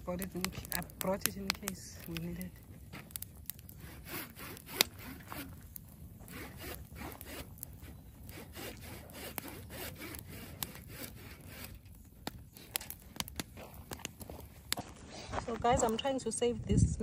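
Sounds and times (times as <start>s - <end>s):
rough scraping strokes: 2.9s - 15.6s.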